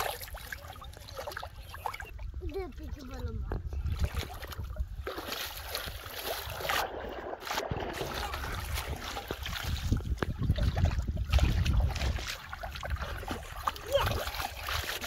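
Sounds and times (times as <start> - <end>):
person wading through water: 0.0 - 15.0
wind buffeting microphone: 0.7 - 15.0
fish thrashing in water: 3.8 - 15.0.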